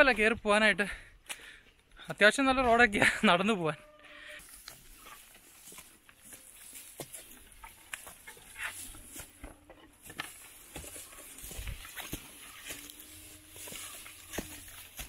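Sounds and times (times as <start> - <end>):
footsteps on dry trail: 4.1 - 15.0
crackling through dry grass: 4.2 - 15.0.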